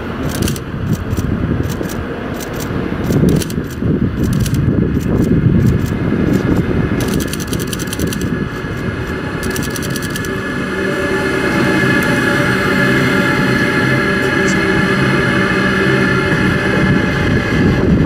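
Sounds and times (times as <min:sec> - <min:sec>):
train wheels rumbling on rails: 0:00.0 - 0:18.0
sharp clicks and ticks: 0:00.2 - 0:10.3.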